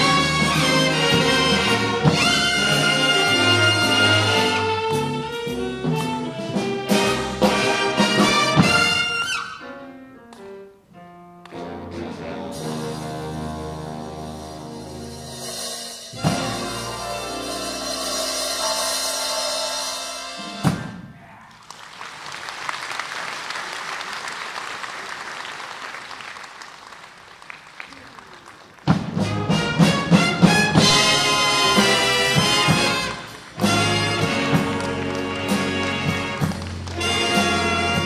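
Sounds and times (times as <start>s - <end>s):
big band brass and drums: 0.0s - 9.6s, 11.5s - 21.3s, 28.8s - 38.0s
audience applause: 21.5s - 29.2s, 33.0s - 37.9s.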